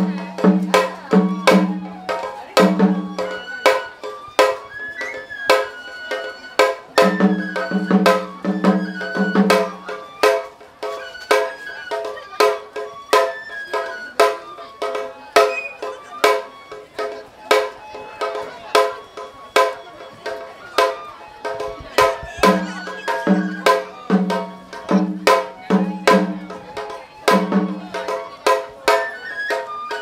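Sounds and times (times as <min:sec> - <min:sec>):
rapid drum strikes: 0:00.0 - 0:03.8, 0:06.8 - 0:10.4, 0:20.8 - 0:29.0
deep barrel drum beats: 0:00.0 - 0:04.6, 0:06.6 - 0:13.2, 0:14.2 - 0:29.0
bamboo flute melody: 0:00.0 - 0:30.0.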